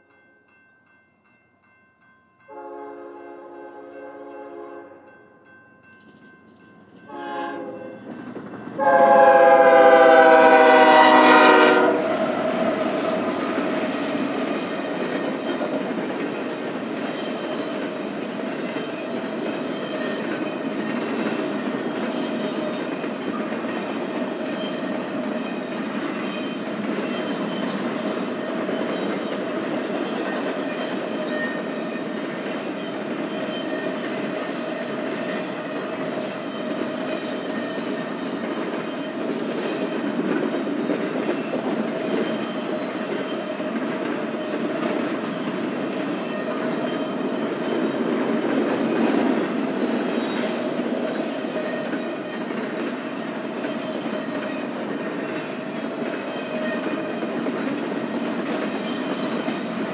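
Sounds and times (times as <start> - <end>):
locomotive air horn blasts: 2.5 - 5.0, 7.1 - 8.0, 8.8 - 12.3
train wheels rumbling on rails: 6.0 - 59.9.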